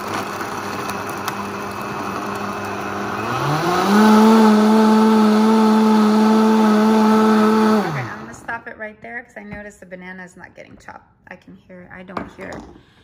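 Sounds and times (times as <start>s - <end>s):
blender motor running: 0.0s - 8.5s.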